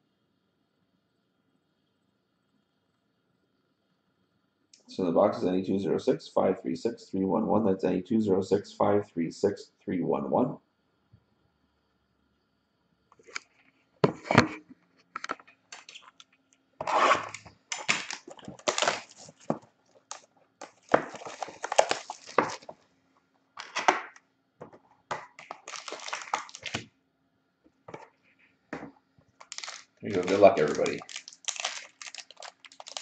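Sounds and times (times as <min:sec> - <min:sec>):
plastic wrap crinkling and tearing: 0:15.7 - 0:16.2, 0:16.8 - 0:22.8, 0:23.6 - 0:24.1, 0:25.1 - 0:26.8, 0:29.4 - 0:33.0.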